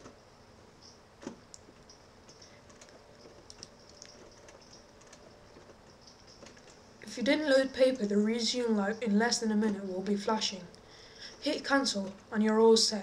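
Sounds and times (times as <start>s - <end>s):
low room noise: 0.0s - 13.0s
faint clicks and ticks: 0.8s - 8.3s.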